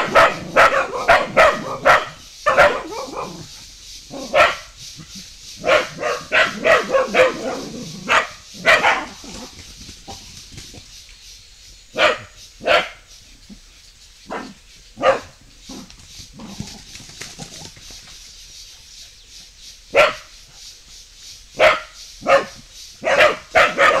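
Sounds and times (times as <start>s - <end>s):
dogs barking: 0.0s - 10.2s, 11.9s - 13.1s, 14.3s - 16.6s, 19.9s - 20.3s, 21.6s - 24.0s.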